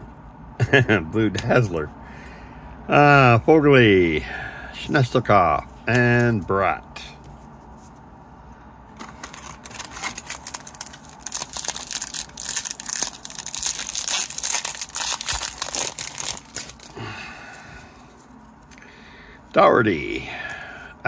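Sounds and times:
card pack wrapper crinkling and tearing: 8.9s - 17.1s.

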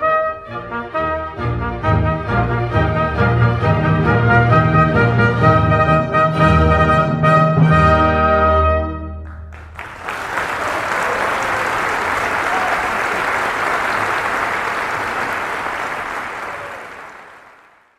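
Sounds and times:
audience applause: 9.3s - 17.9s.

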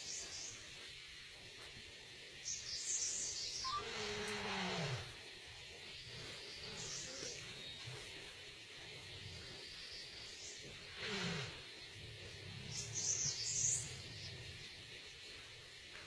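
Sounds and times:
high bird chirps: 2.5s - 3.9s
animal low call: 3.6s - 5.2s, 6.1s - 8.2s, 10.6s - 14.8s.

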